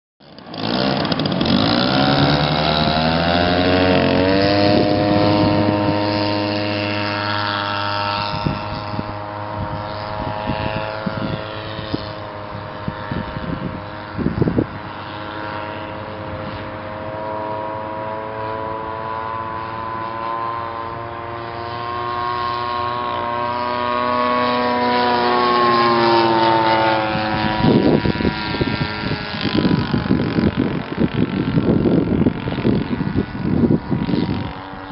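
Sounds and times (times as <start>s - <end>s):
model plane engine: 0.2s - 34.9s
wind gusts on microphone: 0.6s - 34.9s.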